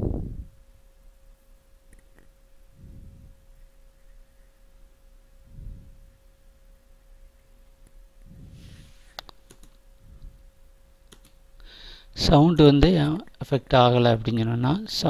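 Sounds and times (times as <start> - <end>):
faint electrical whine: 0.0 - 15.0
soft low rumbles: 2.6 - 9.2, 9.8 - 10.8.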